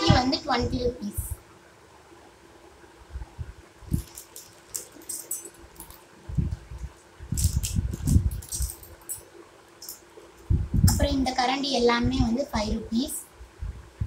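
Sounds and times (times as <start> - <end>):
small metal utensils clinking: 4.0 - 6.1, 7.4 - 10.1.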